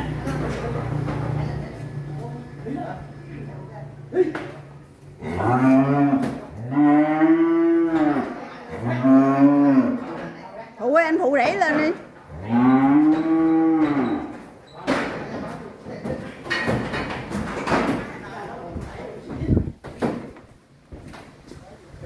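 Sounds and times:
cattle mooing: 5.2s - 10.2s, 12.2s - 14.3s.

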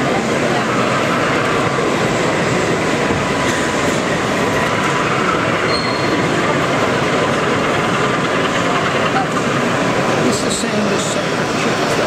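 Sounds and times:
model train wheels rolling on rail: 0.0s - 12.0s.

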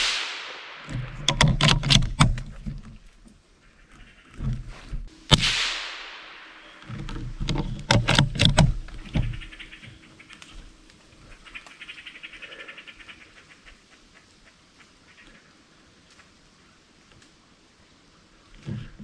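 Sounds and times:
loud rustles and knocks: 0.8s - 3.1s.

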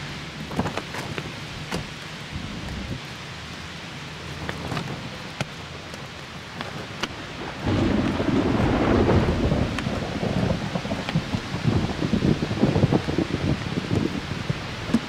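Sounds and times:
rain hissing: 0.0s - 15.0s
raindrops ticking: 0.4s - 15.0s
low thunder rumble: 6.7s - 15.0s.

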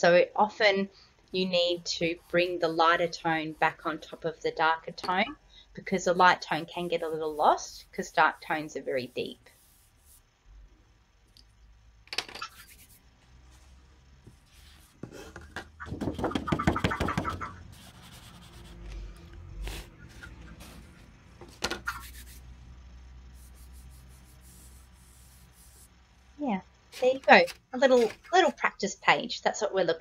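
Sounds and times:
low steady hum: 0.0s - 15.6s, 17.5s - 29.9s
paper rustling and rubbing: 6.0s - 10.2s, 12.4s - 15.4s, 17.7s - 22.4s, 23.4s - 25.9s, 27.0s - 28.6s.

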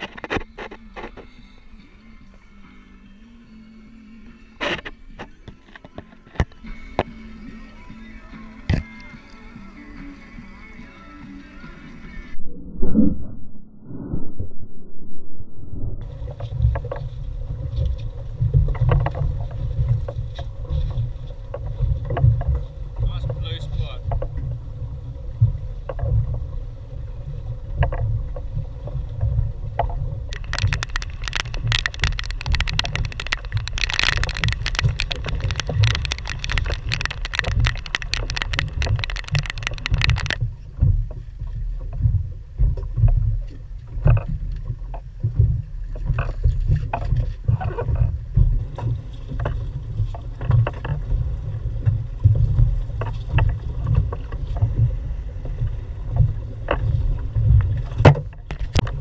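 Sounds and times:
water lapping hull: 0.0s - 12.4s, 16.0s - 59.0s
wind rumble on microphone: 10.4s - 59.0s
dense crackling hiss: 29.6s - 40.4s.

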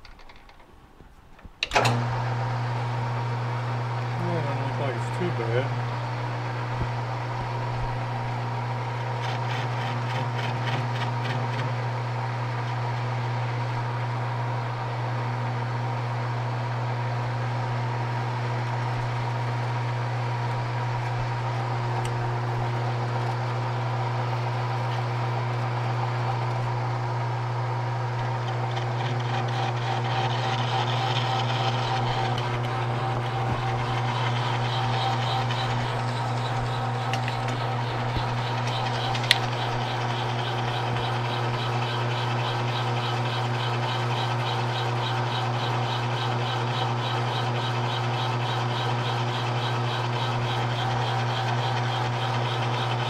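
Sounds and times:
metal lathe humming: 1.6s - 53.0s
lathe tool scraping metal: 4.1s - 11.8s, 18.6s - 53.0s.

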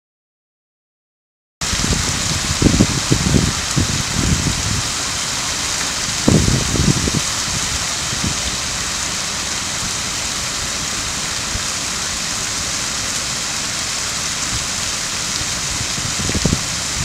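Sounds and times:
fountain water splashing: 1.6s - 17.0s.

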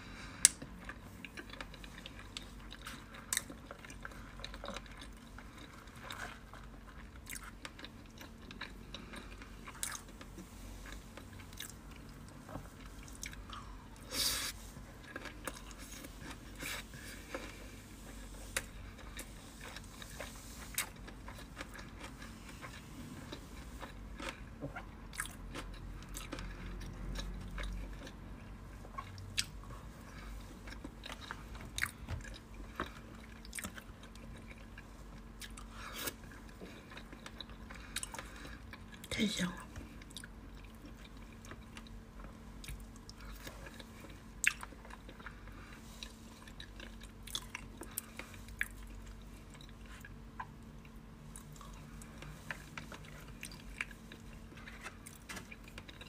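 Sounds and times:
wet chewing: 0.4s - 39.0s.

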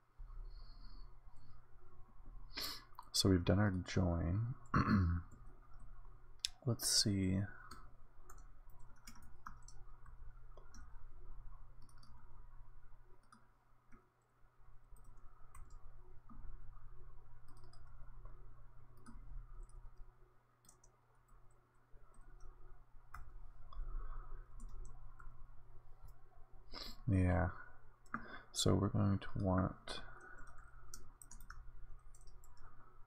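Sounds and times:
low steady hum: 0.0s - 33.0s
keyboard typing: 7.6s - 14.1s, 14.9s - 25.4s, 29.4s - 33.0s.

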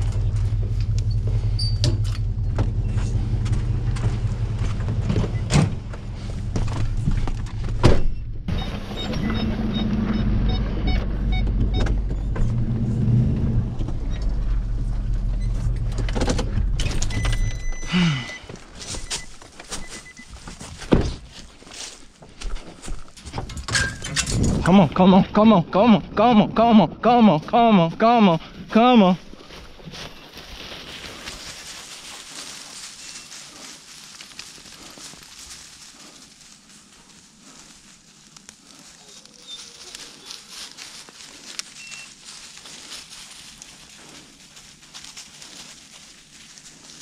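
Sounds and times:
truck engine running: 0.0s - 20.2s
door thunks: 4.8s - 6.0s, 6.7s - 8.5s.

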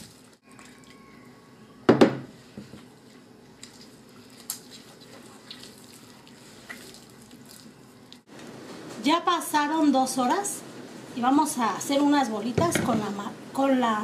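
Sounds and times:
dough thumping on table: 1.9s - 2.8s
hands kneading dough: 2.4s - 8.3s.

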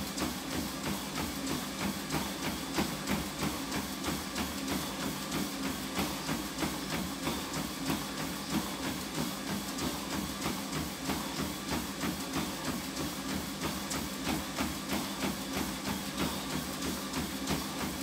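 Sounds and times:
running footfalls on treadmill: 0.0s - 18.0s
treadmill motor hum: 0.0s - 18.0s.

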